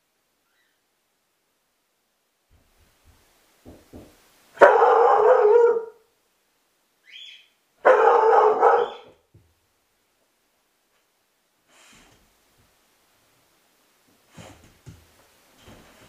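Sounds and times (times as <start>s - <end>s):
dog barking loudly: 4.6s - 6.0s, 7.8s - 9.2s.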